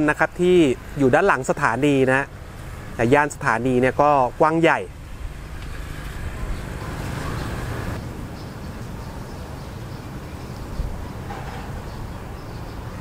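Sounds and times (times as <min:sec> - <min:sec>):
low outdoor rumble: 0:00.0 - 0:09.0.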